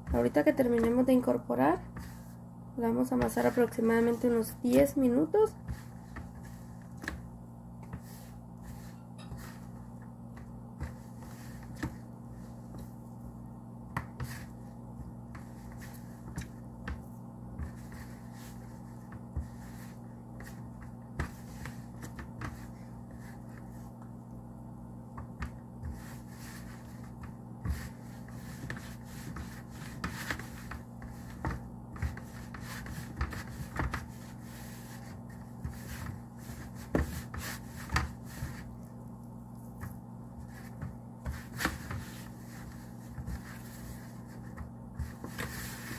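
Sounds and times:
hands mixing dough in plastic tray: 0.0s - 24.4s, 25.1s - 45.9s
steady low hum: 0.0s - 45.9s.

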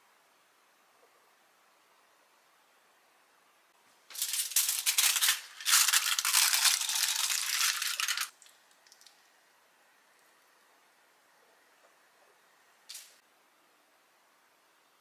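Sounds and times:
rattle of small hard pieces: 4.1s - 8.4s.

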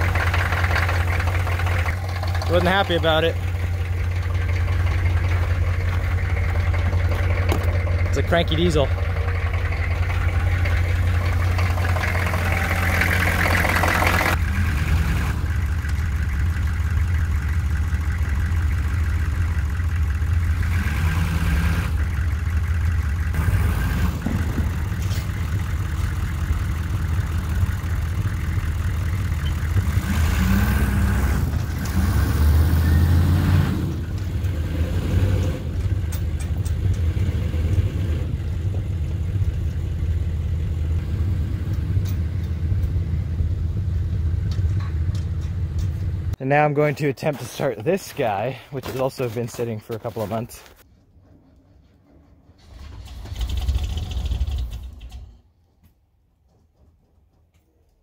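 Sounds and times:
diesel truck engine running: 0.0s - 50.8s.

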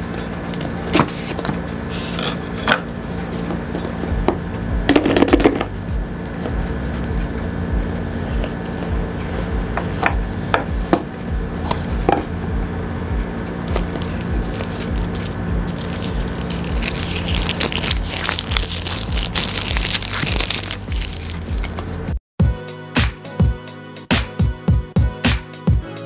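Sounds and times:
background music with steady beat: 0.0s - 26.0s
packaging scraping and rustling: 13.7s - 22.0s.

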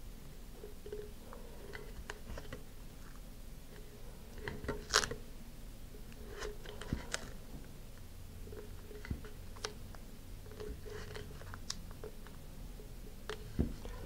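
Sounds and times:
tape crinkling and clicking: 4.4s - 5.2s, 6.1s - 12.4s.

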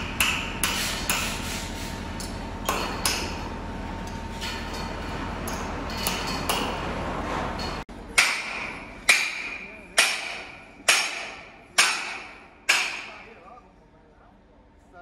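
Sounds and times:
hammer striking steel pin: 0.0s - 1.3s, 5.5s - 6.8s, 8.2s - 13.2s.

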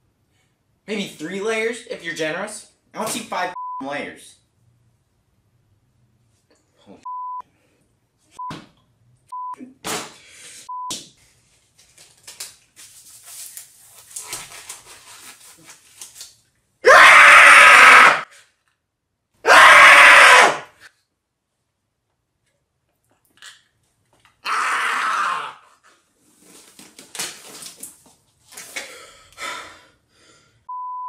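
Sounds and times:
censor bleeps: 3.6s - 3.9s, 7.0s - 7.4s, 9.3s - 9.6s, 30.7s - 31.0s
rubber glove rustling: 11.2s - 16.6s, 25.9s - 28.9s
man screaming: 16.8s - 18.3s, 19.4s - 20.7s, 24.4s - 25.7s.

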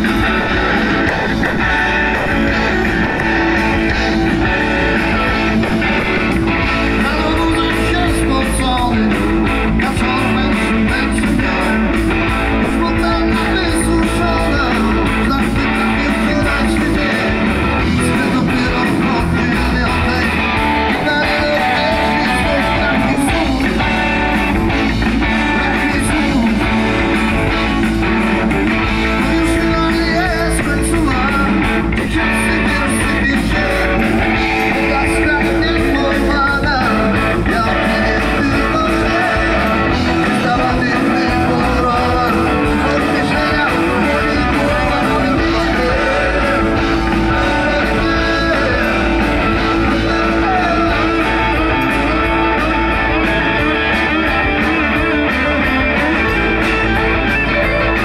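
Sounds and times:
man singing: 0.0s - 56.7s
drums with cymbal beat: 0.0s - 58.0s
electric guitars: 0.0s - 58.0s
keyboard: 0.0s - 58.0s.

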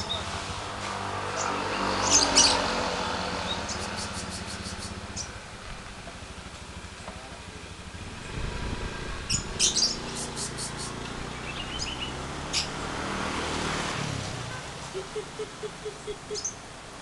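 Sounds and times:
low engine hum: 0.0s - 17.0s
lovebirds chirping: 1.3s - 5.4s, 9.3s - 12.8s, 14.8s - 16.7s.

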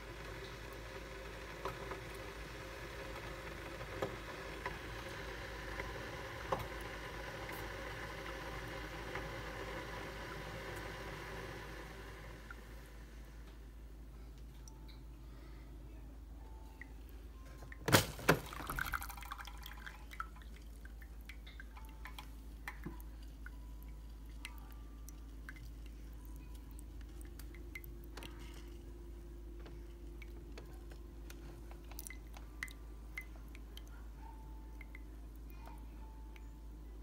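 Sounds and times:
coffee dripping into mug: 18.3s - 28.7s, 31.7s - 35.5s.

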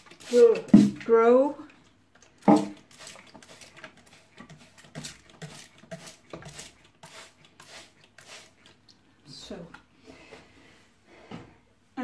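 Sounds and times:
spray bottle spritzing: 0.0s - 0.9s, 2.4s - 8.7s.

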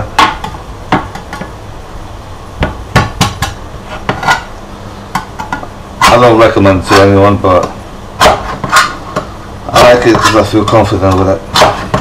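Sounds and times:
knife striking metal can lid: 11.5s - 12.0s.

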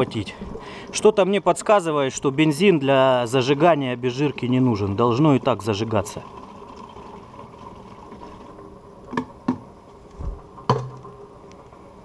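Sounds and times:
liquid draining into plastic jerrycan: 4.1s - 9.6s
plastic clicks and knocks: 10.7s - 11.1s.

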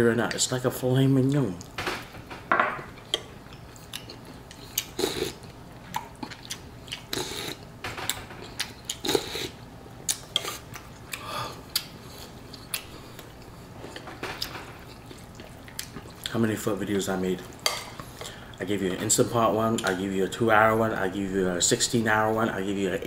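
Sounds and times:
person chewing and slurping noodles: 3.0s - 7.6s, 8.4s - 14.1s.

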